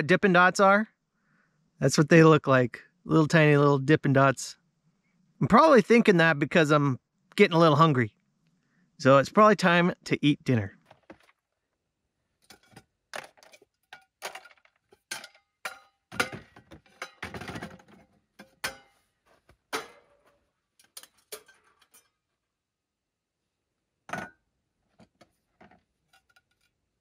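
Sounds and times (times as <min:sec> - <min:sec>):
metal cookware clinking and clattering: 0:12.4 - 0:19.0, 0:19.7 - 0:22.2, 0:24.1 - 0:24.4, 0:25.6 - 0:26.8.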